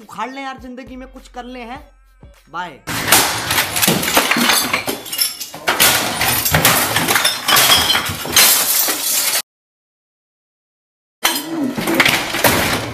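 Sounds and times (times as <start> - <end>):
bottles clinking: 2.9 - 9.4
crashes and breaking glass: 2.9 - 9.4, 11.2 - 12.9.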